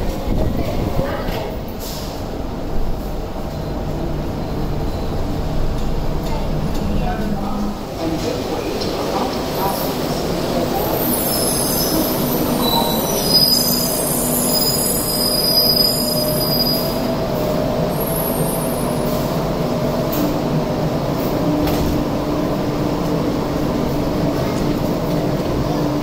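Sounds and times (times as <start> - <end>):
train steady hum: 0.0 - 26.0
people mover squealing: 10.8 - 17.0.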